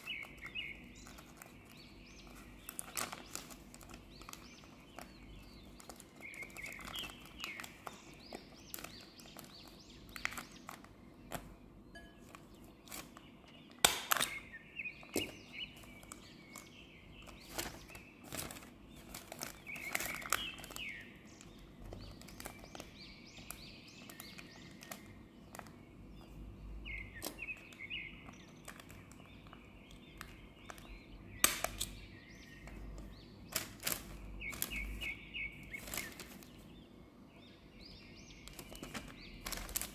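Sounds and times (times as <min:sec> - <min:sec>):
paper crinkling and creasing: 0:00.0 - 0:11.5, 0:12.3 - 0:13.2, 0:15.0 - 0:26.3, 0:27.2 - 0:29.6, 0:33.5 - 0:36.7, 0:38.4 - 0:39.9
bird chirps: 0:00.0 - 0:39.9.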